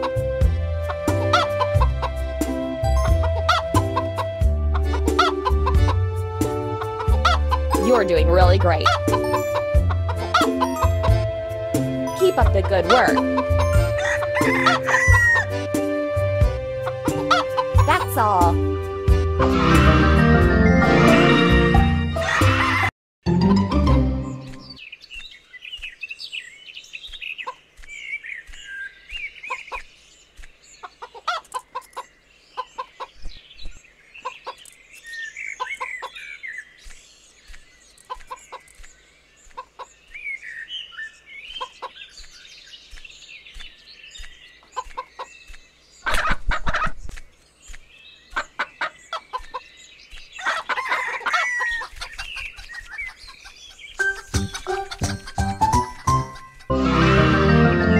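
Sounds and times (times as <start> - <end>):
hens clucking and chirping: 12.1 - 15.6, 30.8 - 34.8, 35.4 - 36.4, 37.9 - 40.1, 41.5 - 42.4, 43.6 - 47.2, 48.3 - 56.8.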